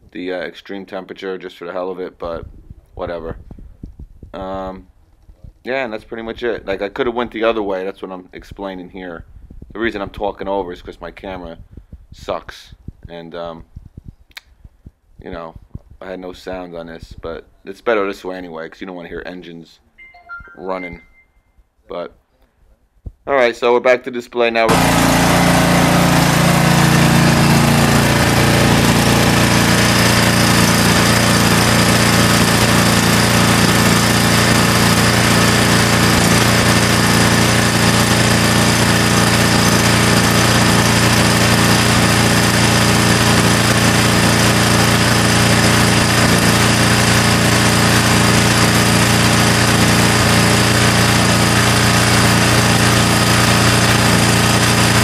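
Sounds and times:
lawn mower engine running: 24.7s - 55.0s.

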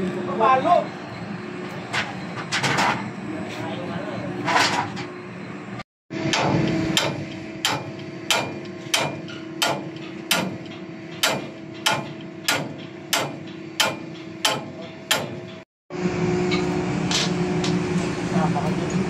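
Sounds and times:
machinery hum: 0.0s - 19.0s
sledgehammer striking metal: 6.2s - 15.6s.

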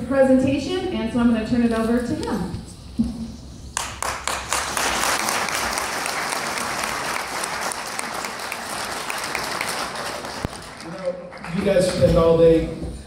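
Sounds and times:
audience applauding: 3.8s - 12.2s.

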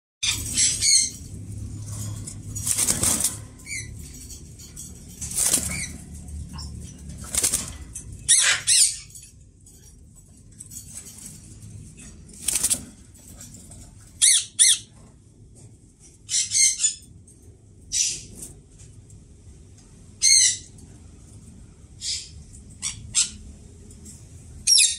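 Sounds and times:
parakeets screeching: 0.2s - 9.4s, 13.8s - 15.0s, 16.2s - 17.1s, 20.2s - 20.8s, 22.0s - 23.6s, 24.6s - 24.9s
faint low hum: 0.2s - 24.8s.

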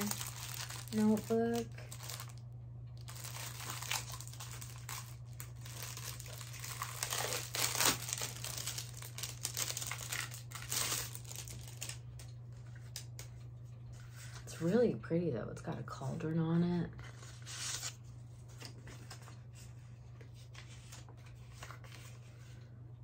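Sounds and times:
packaging crinkling: 0.0s - 13.2s.

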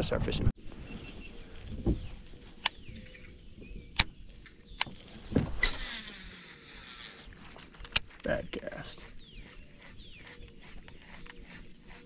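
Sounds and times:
reel spool whirring: 5.6s - 7.4s, 9.0s - 12.0s.

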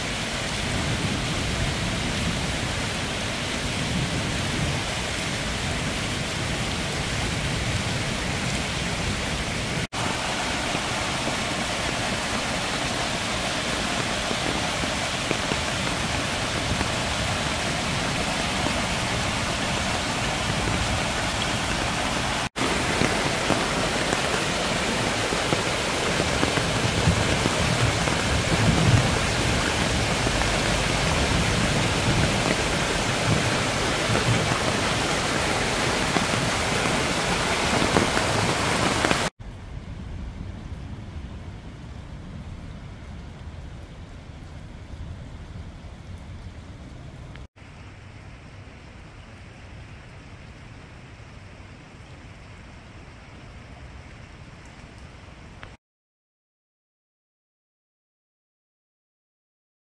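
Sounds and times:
stream rushing over rocks: 0.0s - 39.4s
heavy rain falling: 0.0s - 55.8s.

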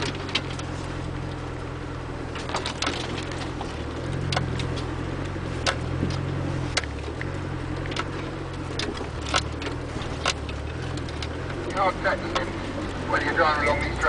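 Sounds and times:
vehicle body knocks and rattles: 0.0s - 0.8s, 2.3s - 11.7s
diesel engine at low revs: 0.0s - 14.0s.

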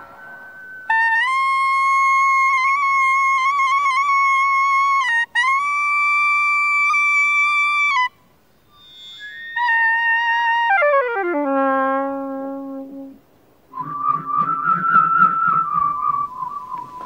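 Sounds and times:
saxophone playing: 0.6s - 8.1s, 8.7s - 13.2s
whirled plastic tube warbling: 9.0s - 17.0s.

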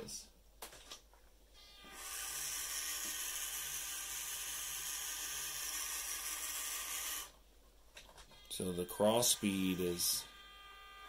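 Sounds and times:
toy truck electric motor whirring: 1.8s - 7.4s, 9.1s - 11.0s.

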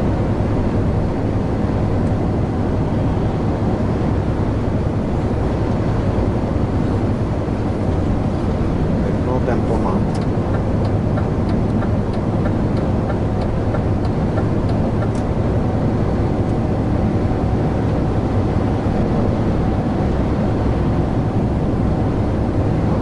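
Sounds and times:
truck engine and road noise: 0.0s - 23.0s
light ticks: 10.1s - 15.3s.

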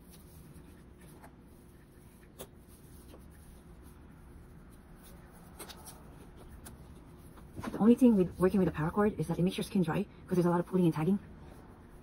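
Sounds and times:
cord rustling: 0.0s - 8.6s
low steady hum: 0.0s - 12.0s.

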